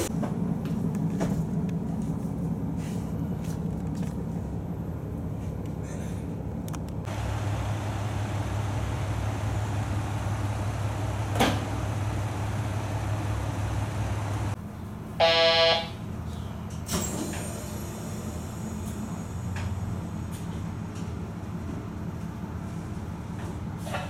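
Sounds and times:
diesel railcar idling hum: 0.0s - 24.0s
train horn blast: 15.2s - 16.0s.

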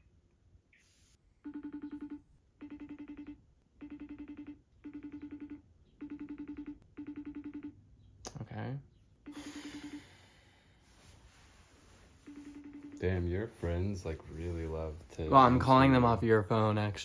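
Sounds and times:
buzzy trilling phone rings: 1.4s - 7.8s, 9.2s - 10.6s, 11.9s - 13.8s.

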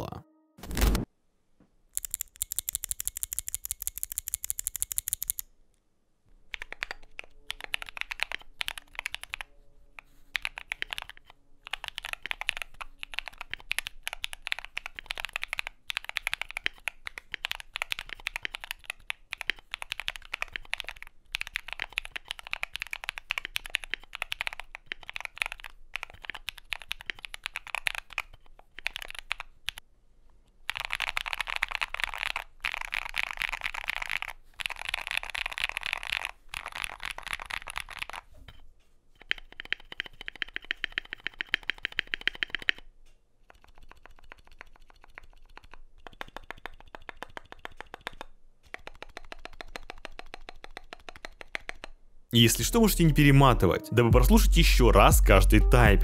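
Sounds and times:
mechanical keyboard typing clicks: 2.0s - 5.5s, 6.5s - 9.5s, 10.4s - 29.8s, 30.7s - 38.3s, 39.2s - 42.8s, 43.5s - 52.0s.

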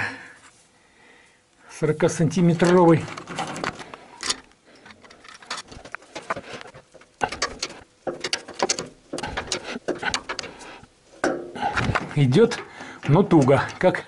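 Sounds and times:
metal tools clicking and clinking: 2.6s - 10.6s, 11.2s - 14.0s.

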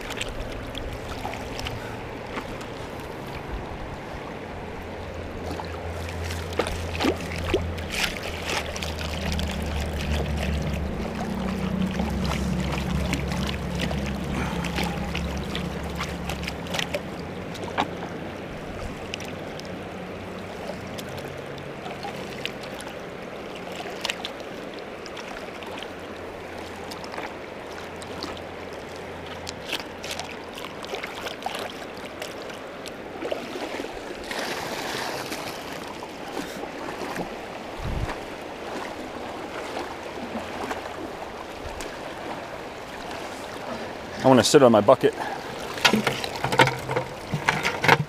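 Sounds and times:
flowing creek water: 0.0s - 48.0s
water splash: 5.4s - 18.1s, 33.2s - 44.3s, 45.0s - 48.0s.

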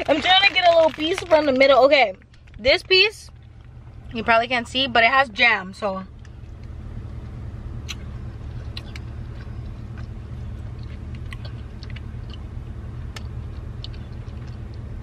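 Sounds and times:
car cabin road rumble: 0.0s - 15.0s
mouth clicks of chewing: 7.8s - 14.9s.

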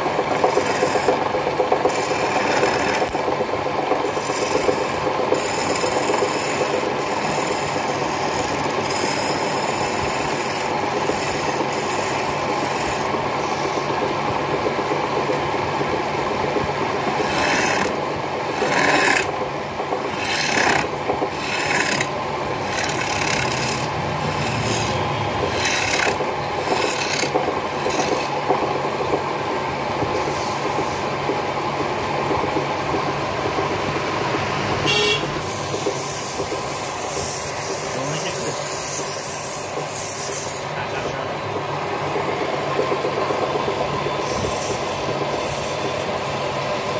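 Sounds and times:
chisel scraping spinning wood: 0.0s - 3.3s, 3.9s - 14.1s, 16.6s - 28.7s, 35.4s - 41.3s
lathe humming: 0.0s - 29.2s.

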